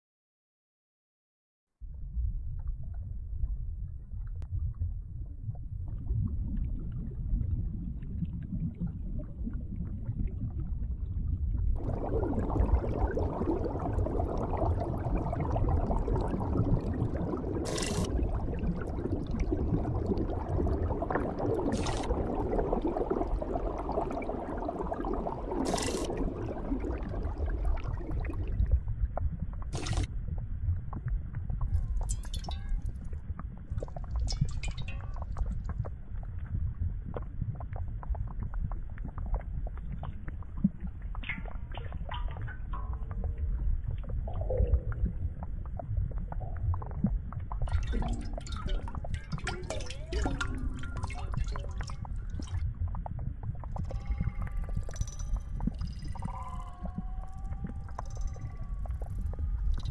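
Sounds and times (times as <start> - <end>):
processed water low rumble: 1.8 - 59.9
bright wash of water noise: 11.8 - 28.4.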